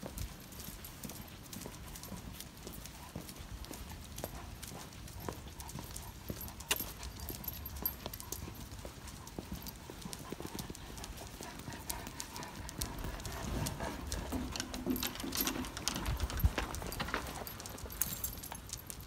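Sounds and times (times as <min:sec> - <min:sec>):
footsteps: 0:02.7 - 0:19.0
dog claws clicking on floor: 0:04.3 - 0:19.0.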